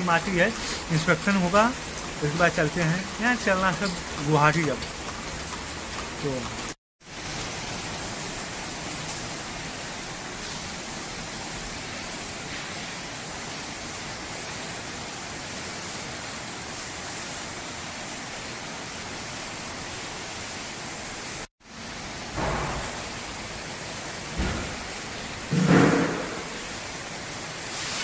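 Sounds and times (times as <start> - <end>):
heavy rain hiss: 0.0 - 28.0.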